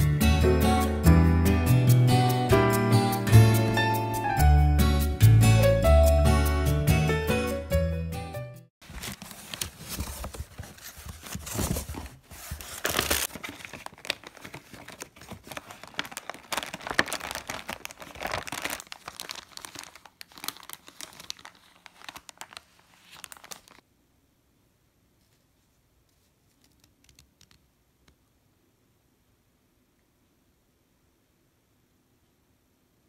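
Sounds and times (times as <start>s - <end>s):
paper crinkling and tearing: 8.8s - 23.8s.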